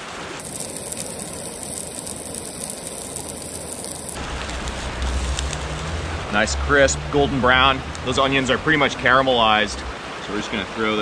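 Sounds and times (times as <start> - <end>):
onions sizzling in frying pan: 0.4 - 5.9
low steady rushing: 0.4 - 8.6.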